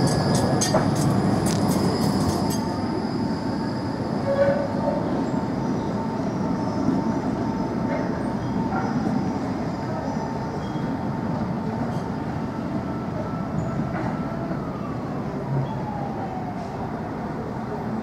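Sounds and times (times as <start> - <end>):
tram wheels clicking over rail joints: 0.0 - 3.0
tram running rumble: 0.0 - 18.0.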